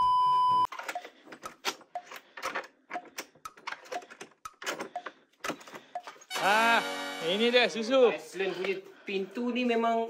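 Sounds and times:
quick irregular clicks: 0.7s - 6.2s.

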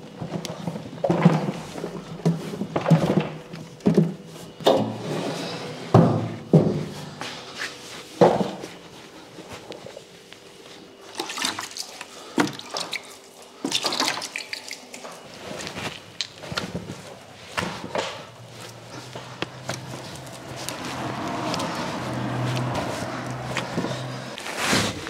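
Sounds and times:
water splashing into plastic tub: 13.7s - 15.1s.

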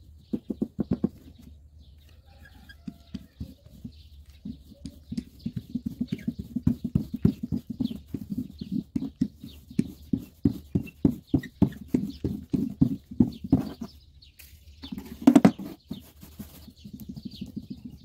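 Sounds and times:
dough roller knocking on board: 0.3s - 1.2s, 15.2s - 15.7s.

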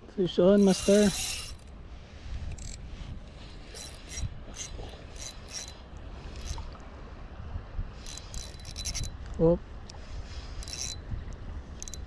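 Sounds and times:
fishing reel ratcheting clicks: 0.5s - 1.7s, 2.5s - 2.8s, 3.7s - 6.6s, 8.0s - 9.2s, 10.6s - 11.0s, 11.8s - 12.0s.

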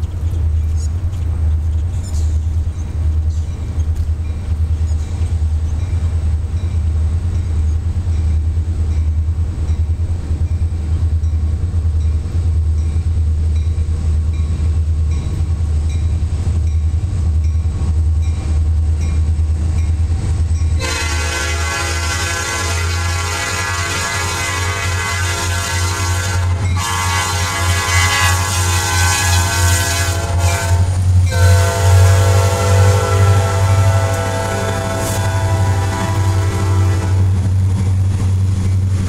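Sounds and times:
locomotive air horn blast: 20.8s - 37.4s.

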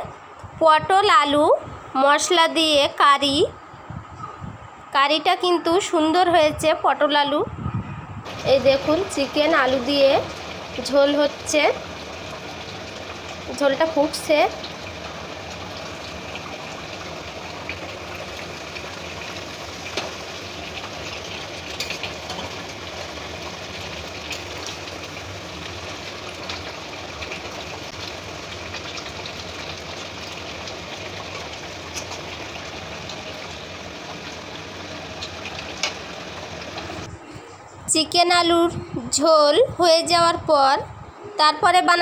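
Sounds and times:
curry boiling with bubbling hiss: 8.2s - 38.3s.

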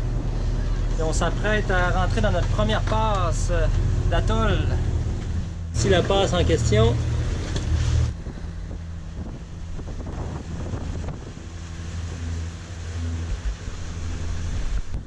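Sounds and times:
low engine drone: 0.0s - 15.0s
water rushing along hull: 0.0s - 15.0s
wind buffeting microphone: 4.8s - 15.0s.

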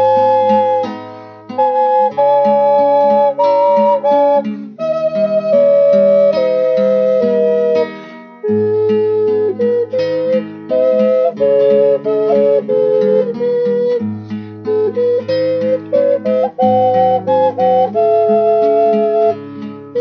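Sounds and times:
double ocarina in harmony: 0.0s - 20.0s
plucked accompaniment: 0.0s - 20.0s.

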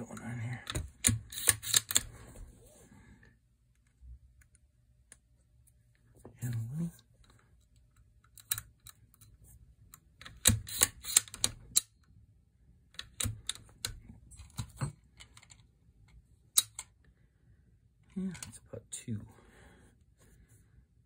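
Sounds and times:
metallic clicks of rifle action: 0.6s - 2.1s, 7.8s - 12.0s, 12.9s - 16.9s.

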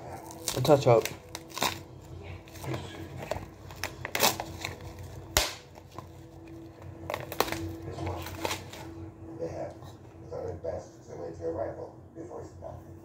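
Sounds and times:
plastic wrap crinkling: 0.2s - 9.0s.

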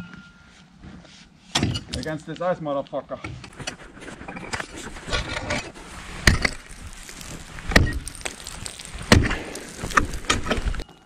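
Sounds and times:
ice cracking and crunching: 4.9s - 11.0s
axe striking ice: 6.2s - 10.8s.

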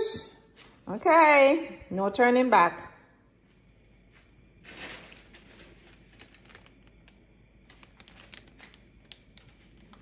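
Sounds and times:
plastic bag crinkling: 4.6s - 10.0s.

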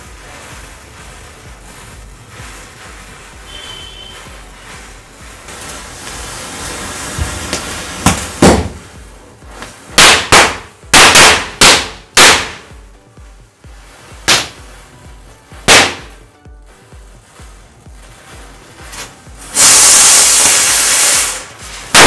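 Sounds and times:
hiss: 0.0s - 10.2s, 18.3s - 22.0s
firecrackers banging: 0.0s - 22.0s.

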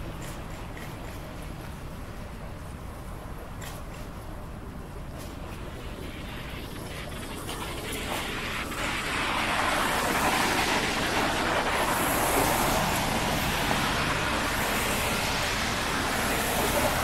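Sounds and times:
car tyres hissing on wet pavement: 5.4s - 17.0s.

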